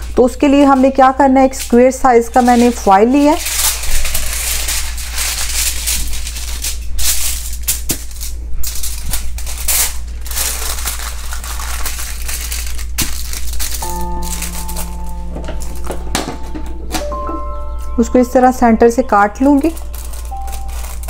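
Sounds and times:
aluminium foil crinkling: 0.0s - 17.2s, 18.5s - 21.0s
background music: 13.8s - 21.0s.

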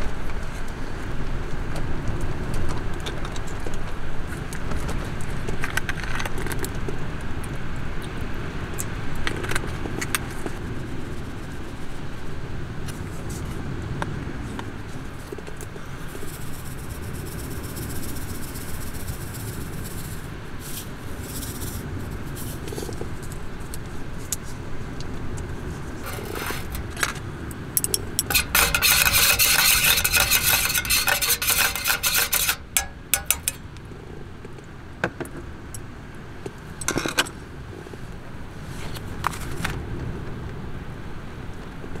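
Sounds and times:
seasoning shaken into cup: 16.2s - 22.6s
metal spoon stirring in steel cup: 26.0s - 27.2s, 27.8s - 33.6s.

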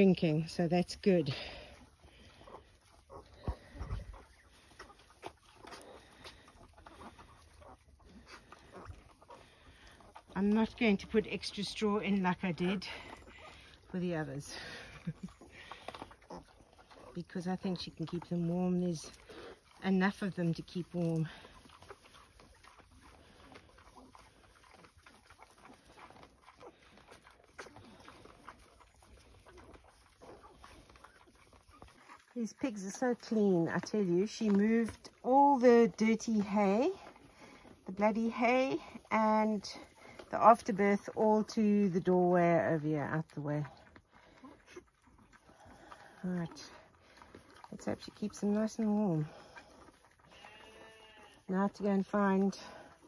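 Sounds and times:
piglets squeaking and grunting: 1.4s - 10.4s, 12.2s - 18.2s, 19.1s - 32.4s, 49.2s - 52.0s.

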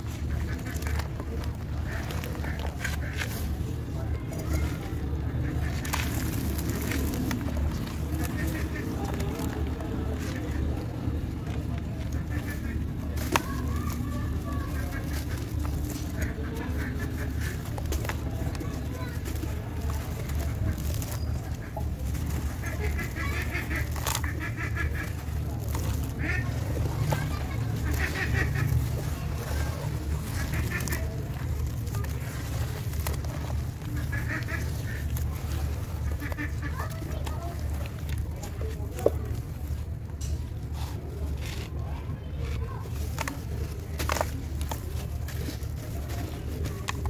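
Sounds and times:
block crunching and crumbling: 0.0s - 47.0s
steady low rumble: 0.0s - 47.0s
honking calls: 11.9s - 37.6s.

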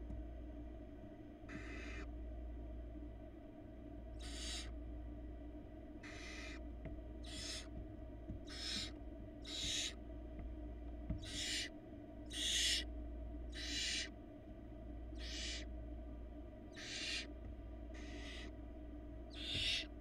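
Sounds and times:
owl chicks hissing: 1.5s - 2.1s, 4.2s - 4.7s, 6.0s - 7.7s, 8.4s - 10.0s, 11.2s - 11.7s, 12.3s - 12.9s, 13.5s - 14.1s, 15.1s - 15.7s, 16.7s - 17.3s, 17.9s - 18.6s, 19.3s - 19.9s.

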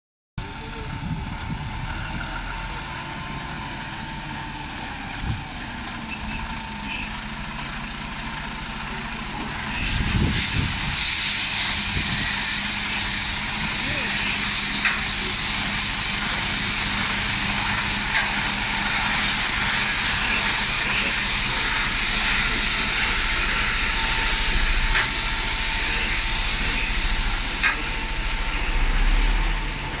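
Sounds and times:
truck engine rumble: 0.4s - 30.0s
water jets spraying: 10.3s - 29.6s.

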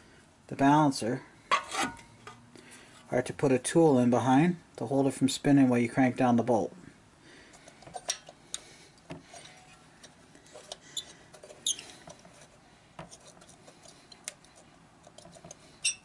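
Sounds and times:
light metal clicks and scrapes: 7.5s - 16.0s.

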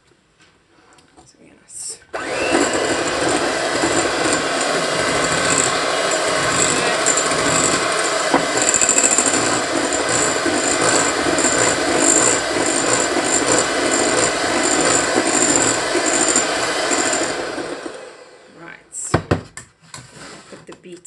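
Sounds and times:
electric hand mixer running: 2.1s - 18.6s.

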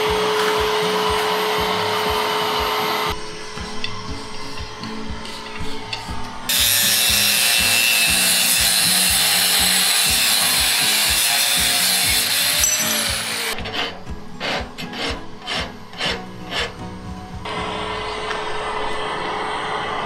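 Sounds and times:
angle grinder cutting steel: 0.0s - 16.8s
hand file rasping on steel: 5.2s - 16.8s.

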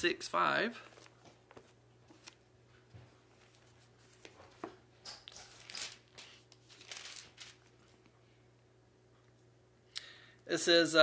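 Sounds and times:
paper pages rustling: 0.8s - 2.4s, 3.4s - 8.0s.

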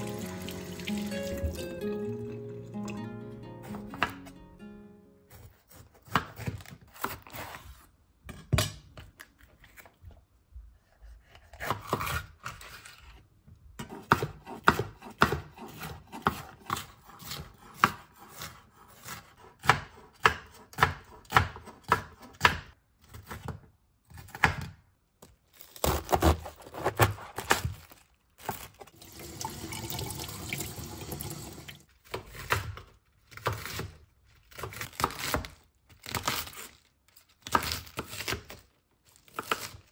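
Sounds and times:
knife chopping on wooden board: 5.3s - 7.4s, 13.8s - 24.8s.

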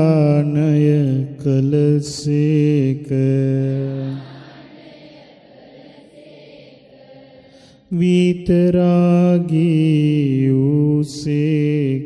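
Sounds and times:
monk chanting: 0.0s - 4.4s, 7.5s - 12.0s.

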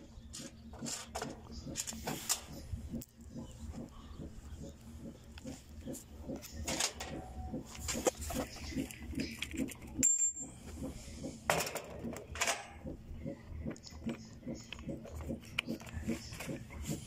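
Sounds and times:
soft low pulsing: 0.0s - 17.0s
metal tools clinking: 10.0s - 10.4s.

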